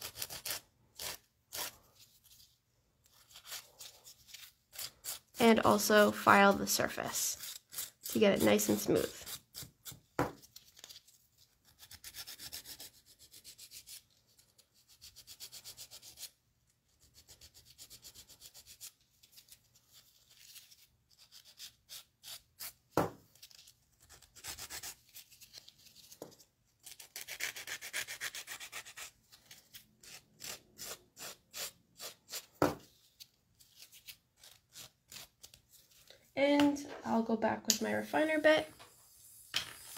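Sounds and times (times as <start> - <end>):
nail file rasping: 0.0 - 1.8, 7.4 - 8.2, 26.8 - 32.5.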